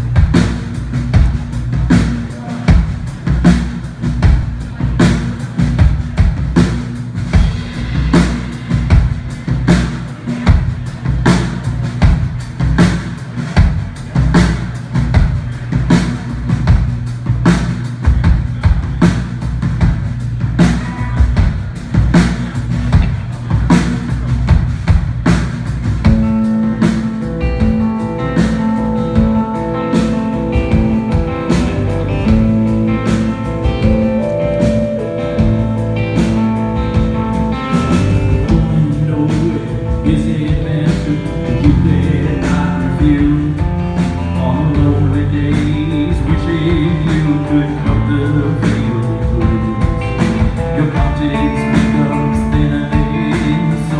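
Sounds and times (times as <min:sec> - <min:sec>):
rock band playing: 0:00.0 - 0:53.9
held guitar notes: 0:26.1 - 0:53.9.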